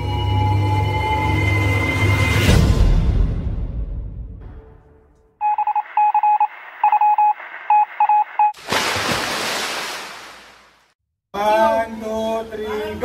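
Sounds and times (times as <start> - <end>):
music: 0.0 - 5.1
short electronic beeps: 5.4 - 8.6.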